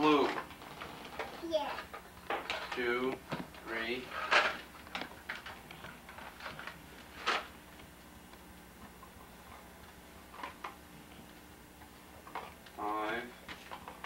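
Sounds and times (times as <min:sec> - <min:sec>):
faint steady hum: 0:00.0 - 0:14.0
candles clicking and tapping: 0:04.6 - 0:12.8.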